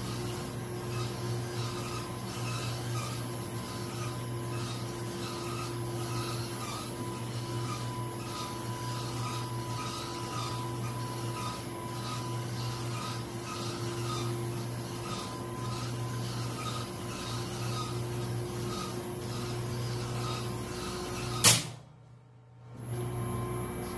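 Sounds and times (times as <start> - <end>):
testing machine humming: 0.0 - 21.4.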